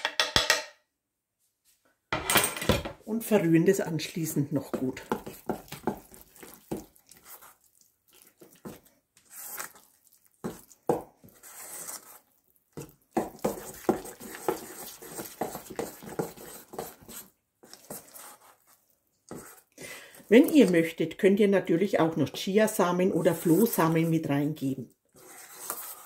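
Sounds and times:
cutlery scraping and squelching dough: 4.5s - 21.0s, 22.2s - 26.0s.

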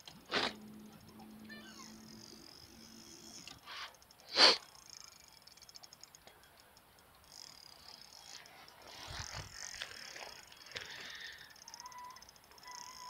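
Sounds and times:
faint wind: 0.0s - 13.0s
fishing reel ticking: 0.0s - 13.0s.

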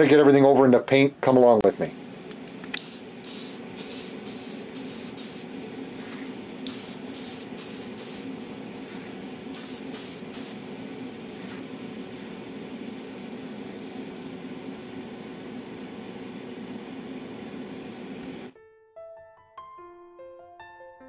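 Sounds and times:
steady low hum: 0.0s - 18.5s
spray paint hissing: 2.8s - 5.5s, 6.1s - 8.3s, 9.5s - 10.6s.

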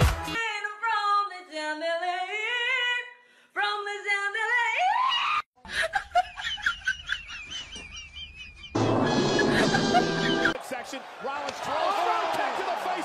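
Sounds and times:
woman singing unaccompanied: 0.4s - 4.8s.

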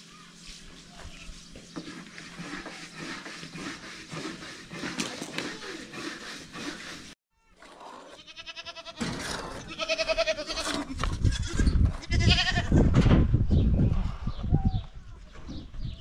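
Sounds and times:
goats bleating: 8.2s - 9.0s, 9.7s - 12.7s.

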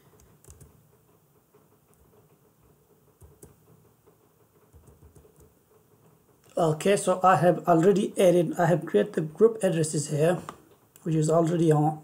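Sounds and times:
keyboard and mouse clicks: 0.2s - 0.7s, 3.2s - 3.6s, 4.7s - 5.5s.

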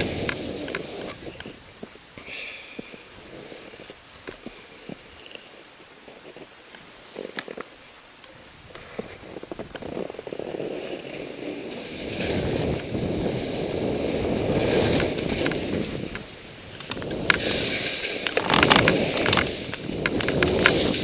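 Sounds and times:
wind rushing over microphone: 0.0s - 2.0s, 8.4s - 21.0s
skis scraping over snow: 0.0s - 21.0s.

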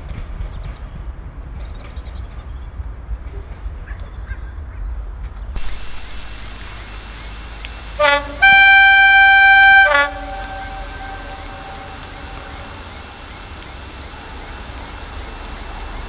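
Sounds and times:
steam locomotive whistle: 5.7s - 14.9s.

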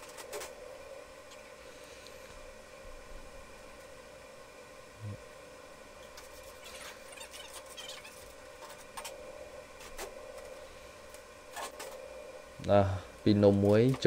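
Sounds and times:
faint kitchen equipment hum: 0.0s - 14.0s.

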